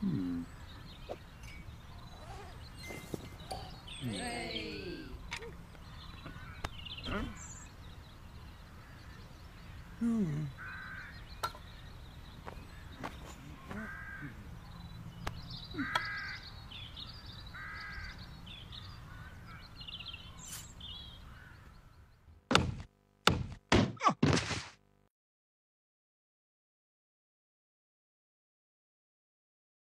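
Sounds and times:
bird cawing: 4.7 - 7.7, 8.3 - 14.9, 15.5 - 22.2
loud thumps: 22.5 - 24.8.

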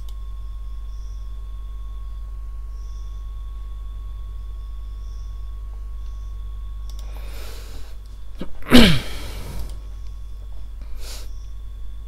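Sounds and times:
low electrical hum: 0.0 - 12.0
person sneezing: 8.4 - 9.7.

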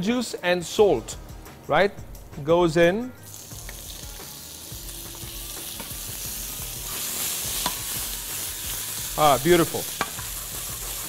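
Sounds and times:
prawns sizzling in oil: 3.2 - 11.0.

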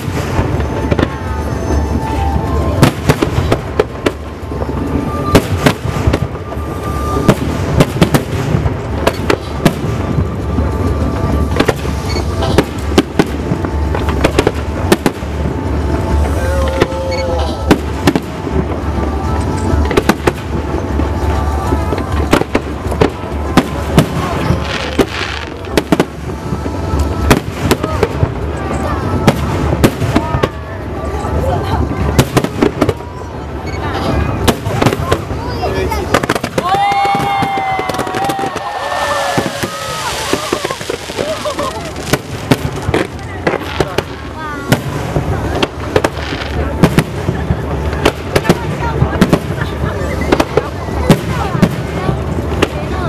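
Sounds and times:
continuous low rumble: 0.0 - 53.0
fireworks bursting bangs: 0.0 - 53.0.

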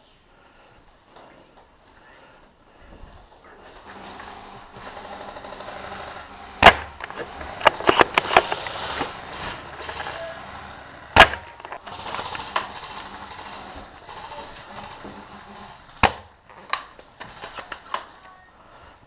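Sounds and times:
airsoft gun shots: 6.6 - 8.7, 11.1 - 11.6.

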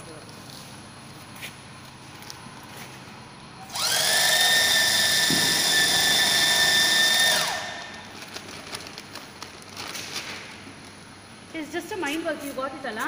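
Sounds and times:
stitching machine motor whining: 3.6 - 8.2.

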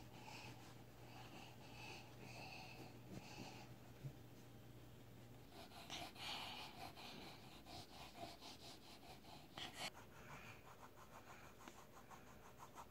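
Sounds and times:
crayon scribbling on paper: 5.5 - 12.9.

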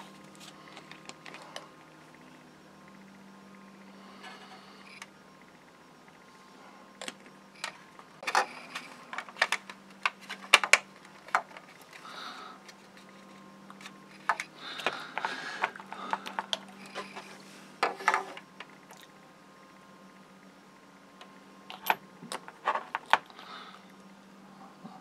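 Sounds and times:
plastic parts clicking and tapping: 7.0 - 13.1, 13.7 - 18.7.

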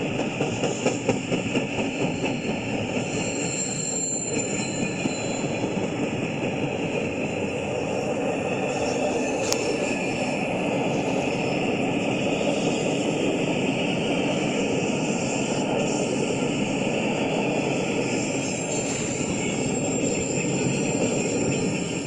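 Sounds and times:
freight train wheels roaring on rails: 0.0 - 22.0.

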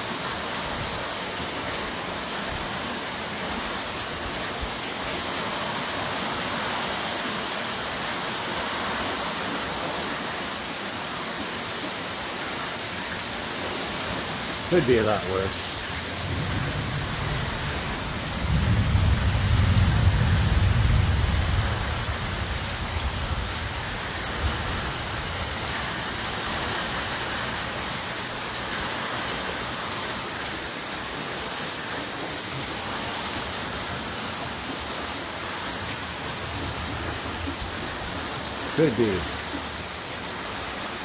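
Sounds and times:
heavy steady rain: 0.0 - 41.0
low rumble of thunder: 15.9 - 26.3.

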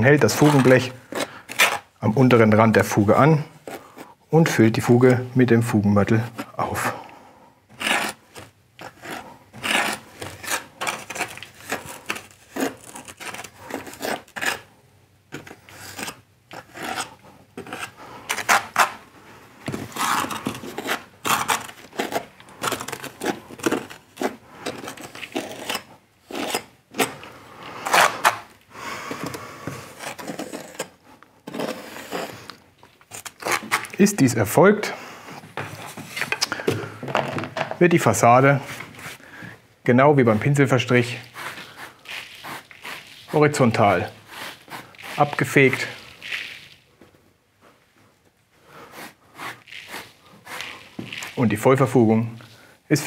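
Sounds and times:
trowel scraping mortar: 0.0 - 1.9, 7.7 - 14.7, 15.3 - 19.0, 19.7 - 34.2, 40.2 - 46.9, 48.8 - 53.0.

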